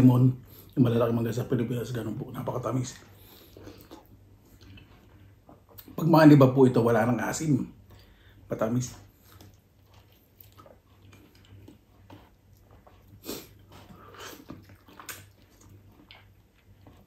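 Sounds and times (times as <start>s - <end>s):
person chewing mango: 0.4s - 6.1s, 7.7s - 17.0s
wet slurps: 9.1s - 17.0s.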